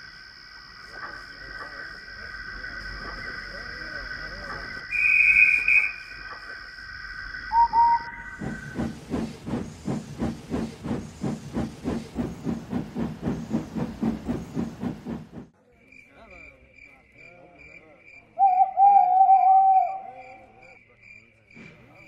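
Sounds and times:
steam whistle toots: 4.9s - 6.1s, 7.5s - 8.6s, 18.4s - 20.4s
steam locomotive exhaust chuffs: 7.5s - 15.5s.

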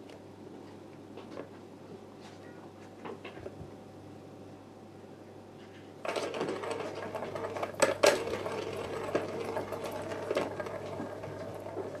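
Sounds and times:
plastic balls rolling and rattling: 6.0s - 12.0s.

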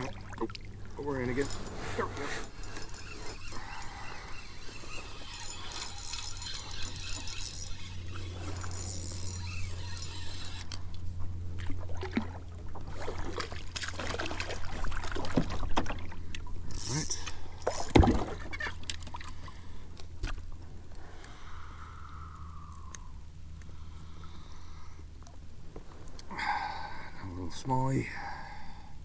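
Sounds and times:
water lapping against hull: 0.0s - 21.4s.

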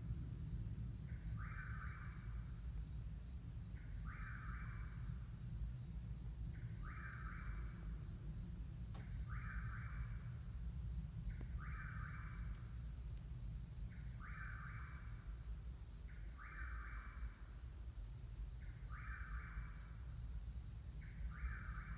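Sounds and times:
cricket chirping: 0.0s - 21.9s
steady low rumble: 0.0s - 21.9s
insect buzzy call: 11.3s - 21.9s.

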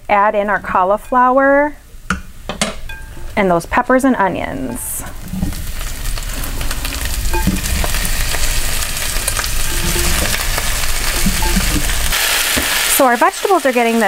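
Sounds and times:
vegetables sizzling in hot oil: 4.6s - 14.0s.

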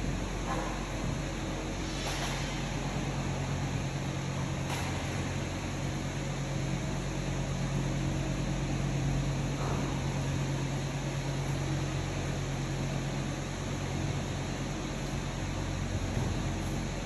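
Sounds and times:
ventilation system humming: 0.0s - 17.0s.

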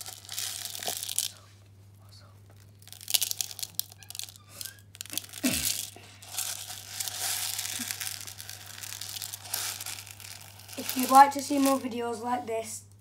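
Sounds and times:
plastic pellets rustling in bowl: 0.0s - 1.4s, 2.6s - 12.2s.

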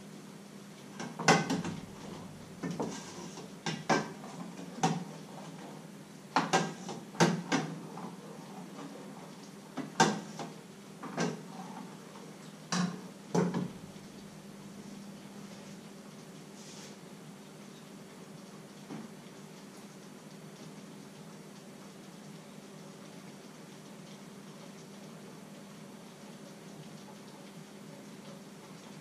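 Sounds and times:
pots and pans clattering: 1.0s - 5.1s, 6.4s - 7.8s, 9.8s - 11.5s
low steady hum: 1.5s - 3.6s.

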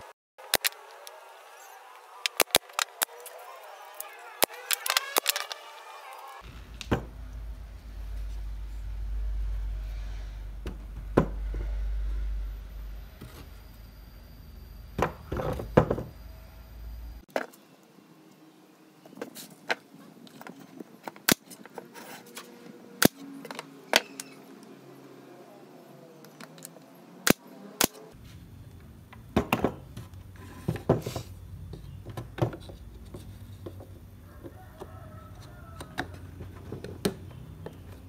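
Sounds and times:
sharp clicks: 2.0s - 3.4s
steady low hum: 6.4s - 17.3s.

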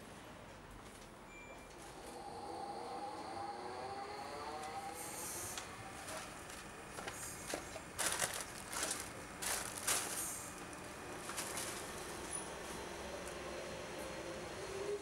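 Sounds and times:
paper rustling on metal bench: 6.0s - 12.4s.

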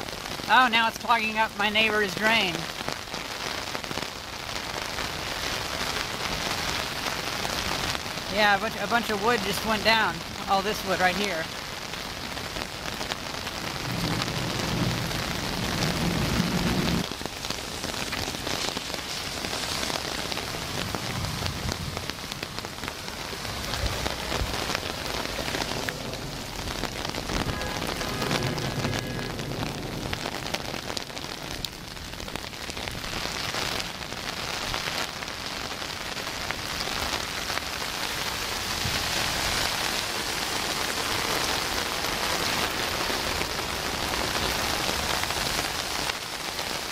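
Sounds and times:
heavy rain on umbrella: 0.0s - 46.9s
low rumble: 20.2s - 32.3s.

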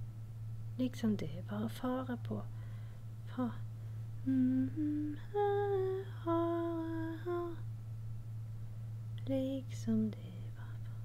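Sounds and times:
woman humming a melody: 4.2s - 7.6s.

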